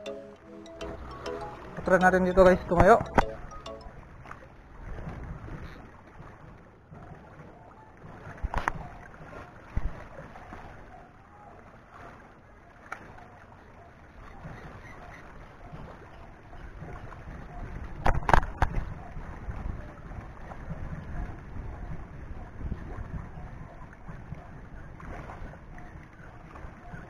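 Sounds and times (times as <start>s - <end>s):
wind buffeting microphone: 4.7s - 7.1s, 15.6s - 27.0s.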